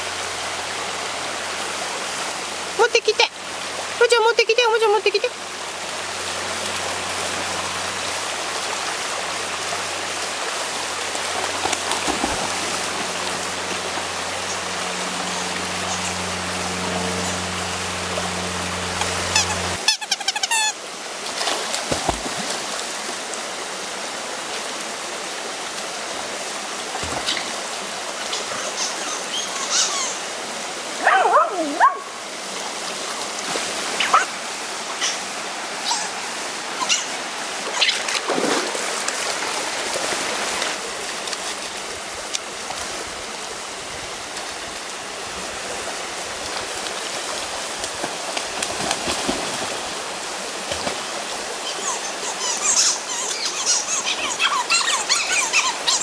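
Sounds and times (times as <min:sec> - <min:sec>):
river water running: 0:00.0 - 0:56.0
dogs splashing in water: 0:11.0 - 0:19.8, 0:46.4 - 0:50.0
dog yelping and whining: 0:52.2 - 0:56.0.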